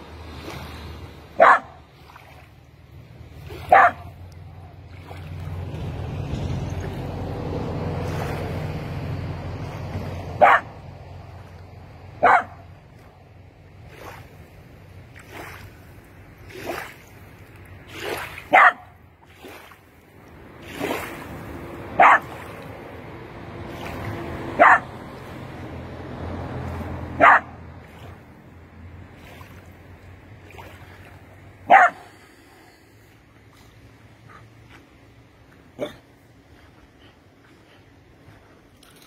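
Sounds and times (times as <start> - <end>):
dog barking: 1.4 - 1.8, 3.7 - 4.8, 10.4 - 10.7, 12.2 - 12.6, 18.5 - 18.9, 22.0 - 22.3, 24.6 - 24.9, 27.2 - 27.5, 31.7 - 32.0.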